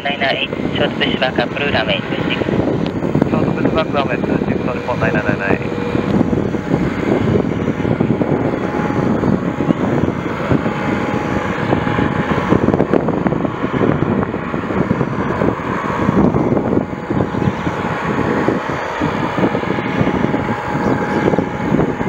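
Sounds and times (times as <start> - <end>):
helicopter rotor and turbine: 0.0 - 22.0.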